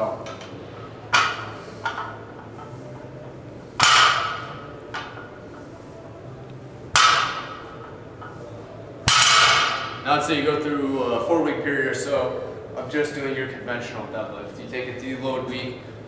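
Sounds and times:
barbell clanging on floor: 1.1 - 2.8, 3.8 - 5.3, 6.9 - 8.4, 9.1 - 10.0
weight plates knocking: 1.1 - 2.8, 7.0 - 7.9.

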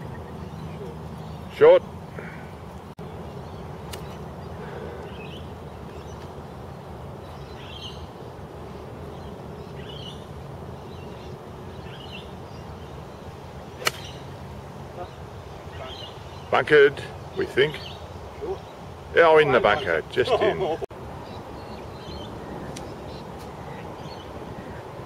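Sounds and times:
outdoor background noise: 0.0 - 25.0
golf club striking ball: 13.8 - 14.2.

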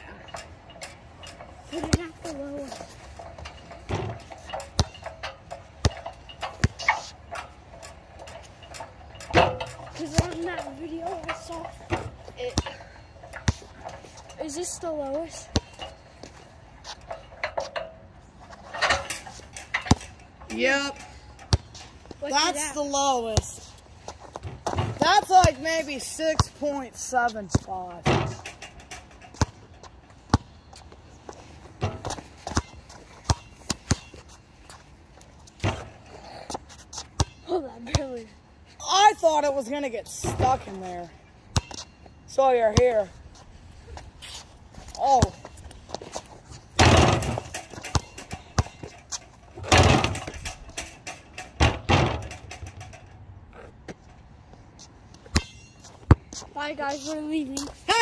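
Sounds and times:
basketball bouncing on hard ground: 1.1 - 17.7, 19.0 - 39.4, 40.2 - 43.4, 44.0 - 53.0, 54.8 - 58.0
ball bouncing: 1.8 - 2.9, 3.8 - 5.2, 9.2 - 13.7, 44.9 - 46.1, 46.8 - 52.9, 55.2 - 56.5.

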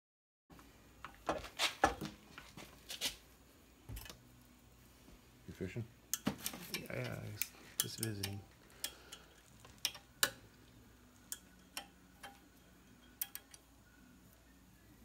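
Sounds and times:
sharp metallic clicks and clinks: 7.4 - 10.4, 13.0 - 13.6.

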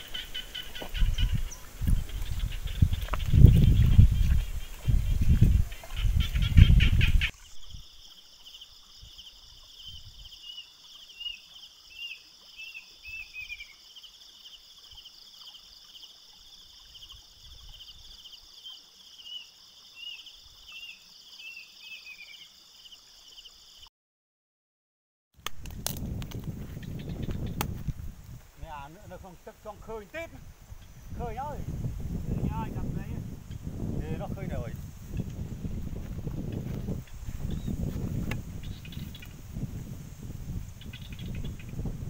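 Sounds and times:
bird chirping: 0.0 - 16.0, 36.5 - 37.8, 38.6 - 39.4, 40.8 - 41.9.

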